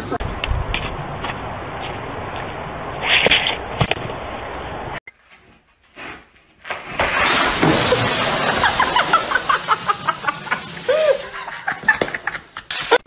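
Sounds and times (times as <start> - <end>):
water gushing into trash can: 7.0 - 13.0
steady hiss: 8.4 - 13.0.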